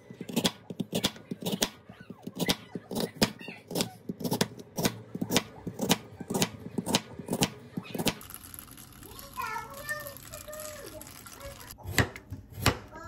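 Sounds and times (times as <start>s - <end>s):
knife chopping on a cutting board: 0.2s - 8.2s, 11.8s - 12.9s.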